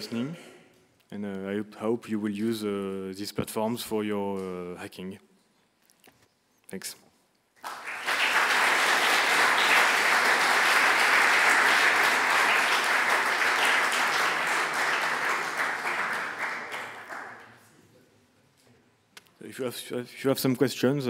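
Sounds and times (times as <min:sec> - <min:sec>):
audience applauding: 0:07.6 - 0:17.6.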